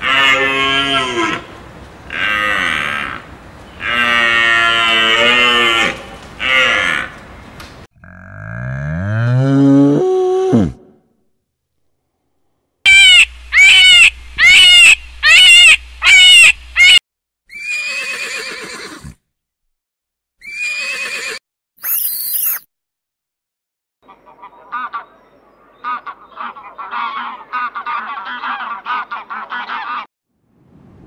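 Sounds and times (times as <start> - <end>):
cow mooing: 0.0 - 1.4, 3.8 - 7.1, 8.0 - 10.8
horse whinnying: 17.5 - 19.2, 20.4 - 21.4.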